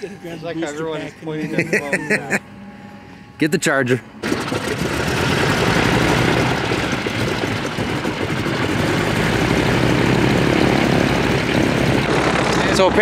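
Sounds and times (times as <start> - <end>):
turboprop engine starting up: 4.0 - 13.0.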